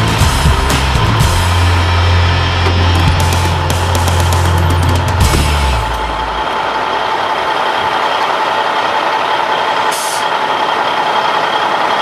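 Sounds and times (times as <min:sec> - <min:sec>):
high whine: 0:00.0 - 0:09.0
truck mechanical noise: 0:00.0 - 0:12.0.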